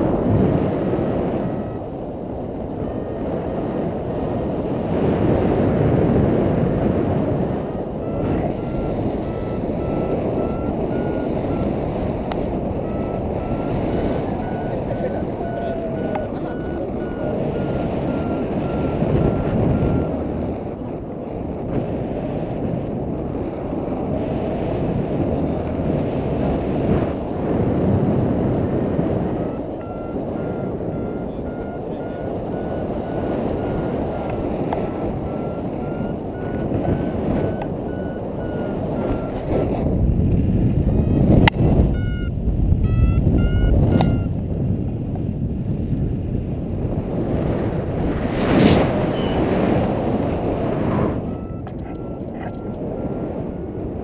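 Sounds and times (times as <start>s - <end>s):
wind rushing over microphone: 0.0s - 54.0s
variometer beeping rapidly: 1.4s - 1.9s, 7.5s - 20.4s, 29.2s - 39.8s, 40.9s - 44.4s, 48.9s - 53.5s.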